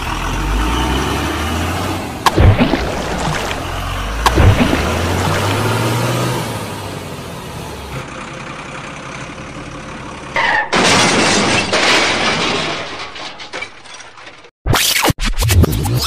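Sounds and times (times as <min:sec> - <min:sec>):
muddy water splashing: 0:02.3 - 0:05.8.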